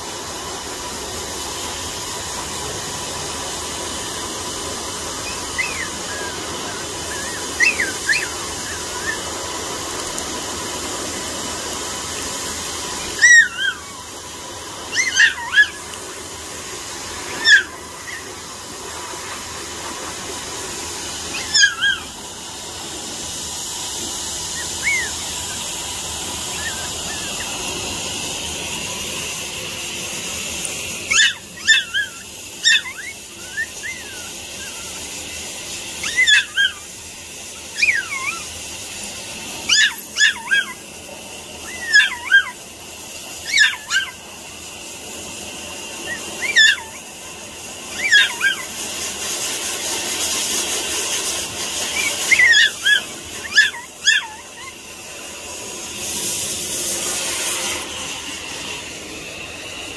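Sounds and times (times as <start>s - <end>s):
puppy yipping and whimpering: 4.4s - 10.6s, 13.0s - 16.2s, 17.0s - 19.5s, 21.1s - 22.4s, 24.2s - 28.8s, 31.0s - 38.7s, 39.6s - 41.0s, 41.6s - 42.7s, 43.4s - 44.4s, 45.8s - 55.4s.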